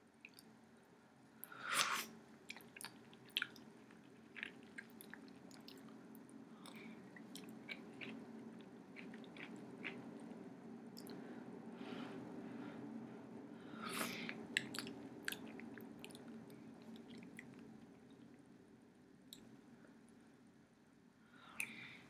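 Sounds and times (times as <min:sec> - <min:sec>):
person chewing: 0:02.5 - 0:06.0, 0:06.6 - 0:10.4, 0:14.2 - 0:17.6
low hum: 0:05.2 - 0:22.0.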